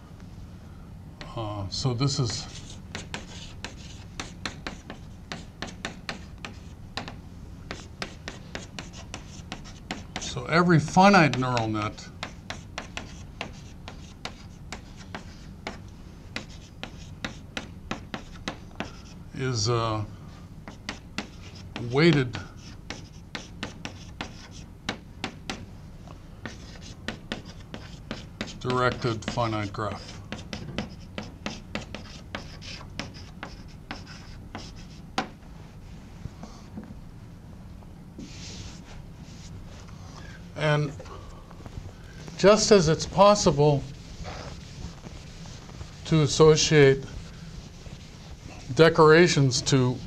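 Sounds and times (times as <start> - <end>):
chalk tapping and scraping on blackboard: 2.1 - 19.2, 20.6 - 25.7, 26.4 - 35.4, 38.2 - 39.5.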